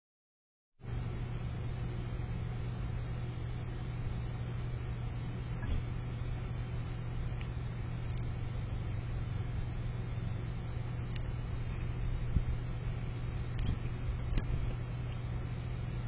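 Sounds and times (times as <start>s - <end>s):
constant hiss: 0.8s - 16.0s
low hum: 0.8s - 16.0s.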